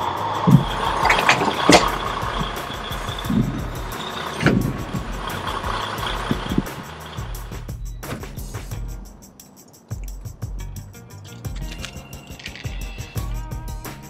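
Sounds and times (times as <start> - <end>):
truck noise: 0.0 - 10.0, 10.8 - 13.5
sharp metal knocks: 0.4 - 8.5.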